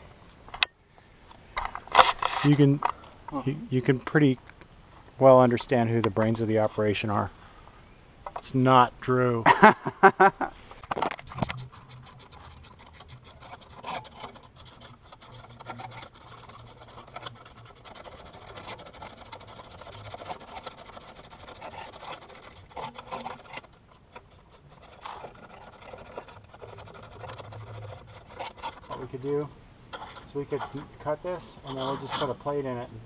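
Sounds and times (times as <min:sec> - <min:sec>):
scraping and rubbing with clicks: 0:01.3 - 0:04.7, 0:10.7 - 0:32.9.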